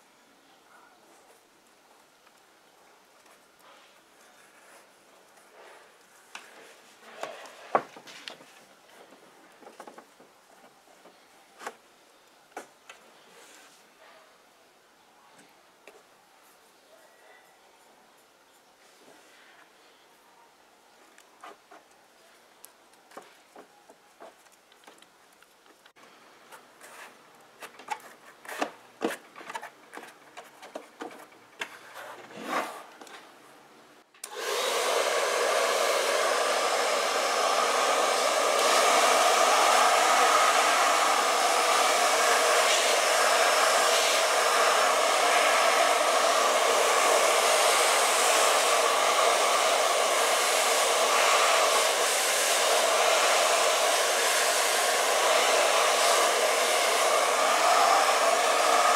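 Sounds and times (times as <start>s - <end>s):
hair dryer blowing: 34.2s - 58.9s.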